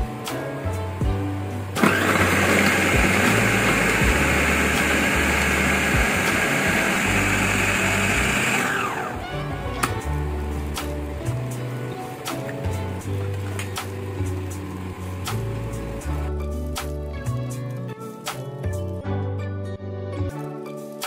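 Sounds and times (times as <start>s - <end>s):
food processor whirring: 1.7s - 10.0s, 13.0s - 16.3s.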